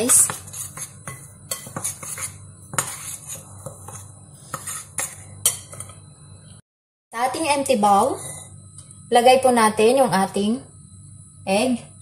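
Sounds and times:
spoon scraping dry flour: 0:00.0 - 0:06.0.

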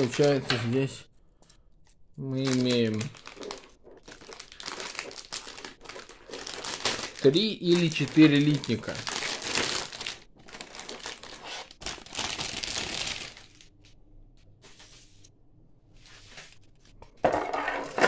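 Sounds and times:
plastic bag crinkling: 0:02.3 - 0:13.8.

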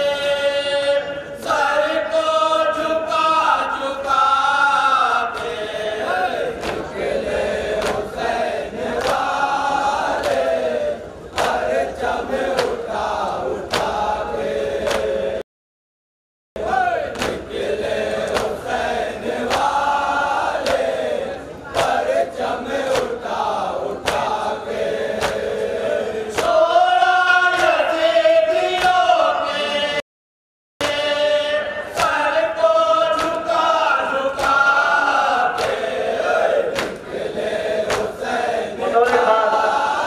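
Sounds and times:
men chanting through microphone: 0:00.0 - 0:15.4, 0:16.6 - 0:30.0, 0:30.8 - 0:40.0
rhythmic chest slaps: 0:04.0 - 0:15.4, 0:17.1 - 0:27.9, 0:28.6 - 0:29.2, 0:30.8 - 0:31.2, 0:31.8 - 0:40.0.

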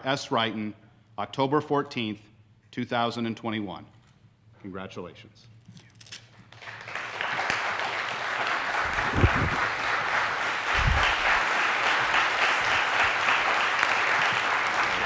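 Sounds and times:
audience applauding: 0:06.5 - 0:15.0.

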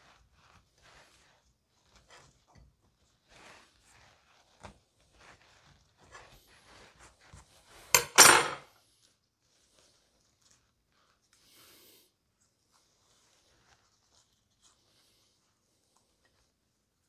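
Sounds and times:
dishes clattering: 0:08.0 - 0:08.6
dishes knocking and scraping: 0:08.0 - 0:08.6.

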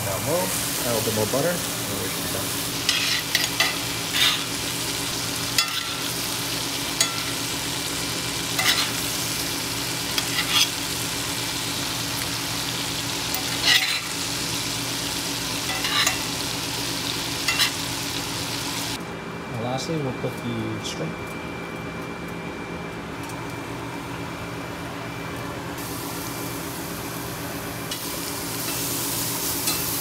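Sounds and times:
scallops sizzling in a pan: 0:00.1 - 0:19.0, 0:25.8 - 0:30.0.

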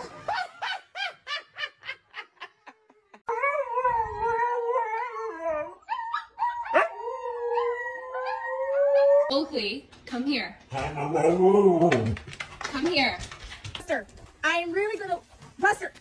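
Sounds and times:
person laughing: 0:00.0 - 0:03.3
dogs howling: 0:03.3 - 0:09.3.

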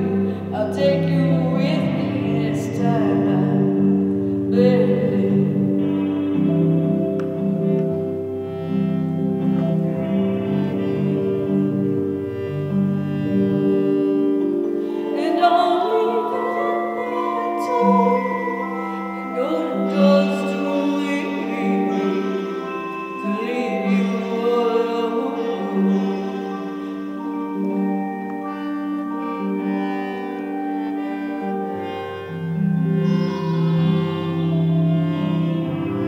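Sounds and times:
wordless singing voice: 0:00.0 - 0:03.9, 0:04.5 - 0:05.7, 0:15.0 - 0:27.8
harmonium chords: 0:00.0 - 0:36.0.

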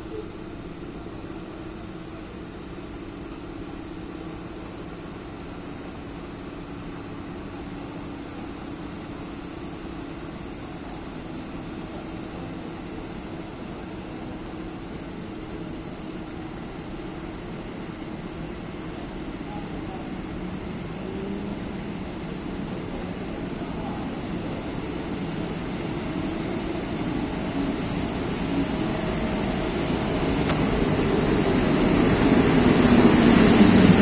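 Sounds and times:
electric locomotive rumble and hum: 0:00.0 - 0:34.0.

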